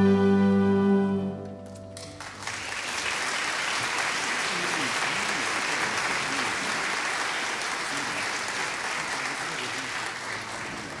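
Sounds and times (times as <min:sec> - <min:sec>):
audience applauding: 0:02.0 - 0:11.0.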